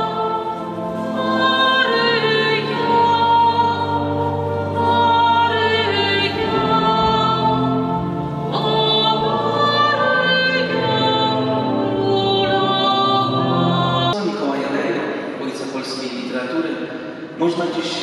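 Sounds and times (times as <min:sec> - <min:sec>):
slow church music with singing: 0:00.0 - 0:18.0.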